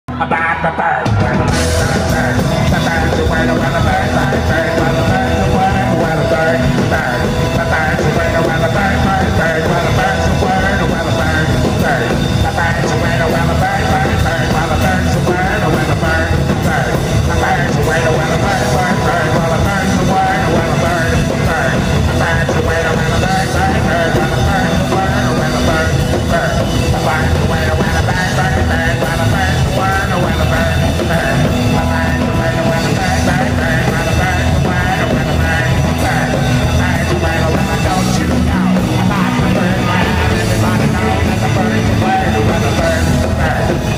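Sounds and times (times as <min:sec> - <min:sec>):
surf rock band playing: 0:00.1 - 0:43.9.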